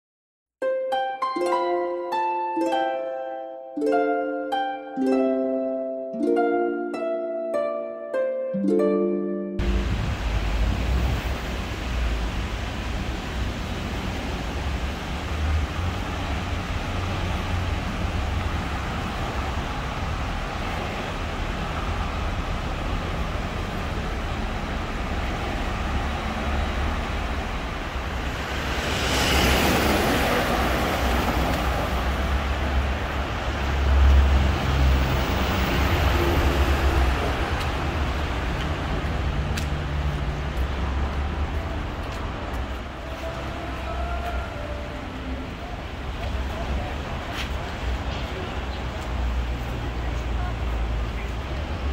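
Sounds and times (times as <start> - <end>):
tram car rumbling: 8.6 - 51.9
running noise hiss: 9.6 - 25.5.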